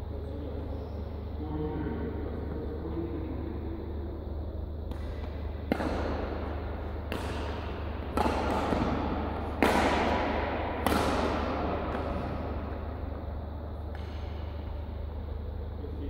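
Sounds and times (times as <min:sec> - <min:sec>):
steady low hum: 0:00.0 - 0:16.0
badminton rackets hitting shuttlecock: 0:04.8 - 0:14.9.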